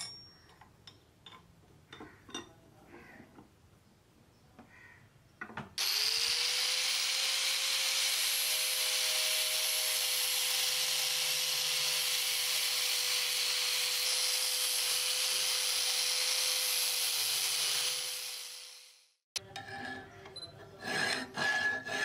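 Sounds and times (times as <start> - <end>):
power tool hissing and whining: 5.8 - 19.1.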